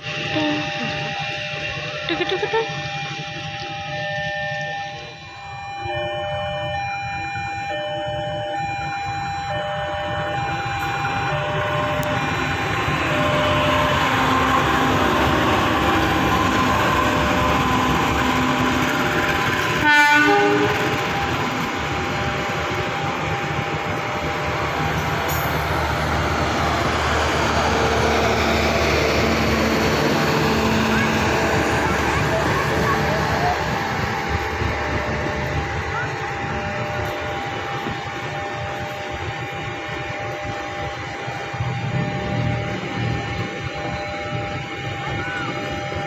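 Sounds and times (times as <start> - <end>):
train rumble and wheel noise: 0.0 - 46.0
locomotive horn blasts: 0.1 - 2.1, 10.0 - 24.2, 30.6 - 46.0.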